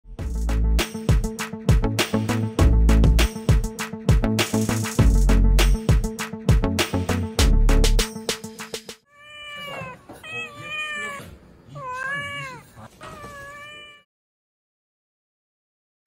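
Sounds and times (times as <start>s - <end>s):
beat-driven music: 0.2s - 8.9s
cat meowing: 9.1s - 14.1s.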